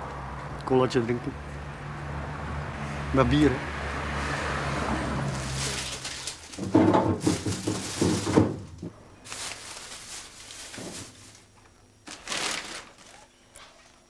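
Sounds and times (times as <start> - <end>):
things knocking in refrigerator: 6.5 - 8.9.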